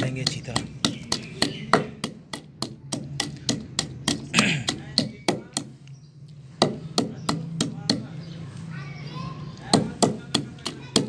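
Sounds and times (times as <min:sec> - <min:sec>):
pestle pounding in stone mortar: 0:00.0 - 0:05.8, 0:06.6 - 0:08.2, 0:09.7 - 0:11.0.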